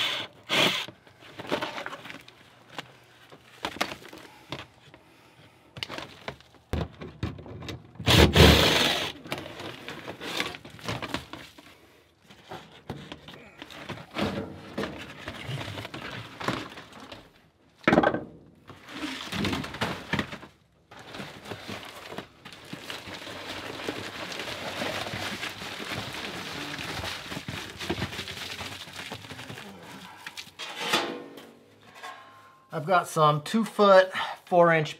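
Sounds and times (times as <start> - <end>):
foil duct crinkling: 20.9 - 30.6.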